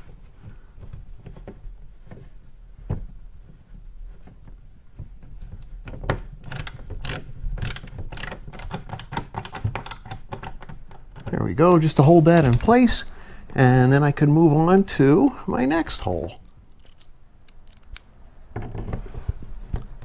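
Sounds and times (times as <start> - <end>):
screwdriver clicks: 6.4 - 10.8.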